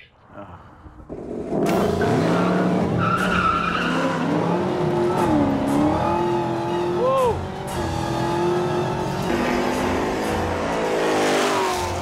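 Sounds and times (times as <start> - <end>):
car engines revving high: 1.1 - 12.0
tyres squealing: 2.4 - 7.4.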